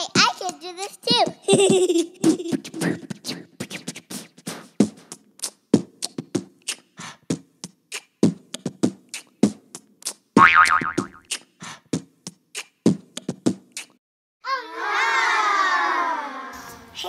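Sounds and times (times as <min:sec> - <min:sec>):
child beatboxing: 0:00.0 - 0:10.2, 0:11.2 - 0:12.0, 0:12.6 - 0:14.0.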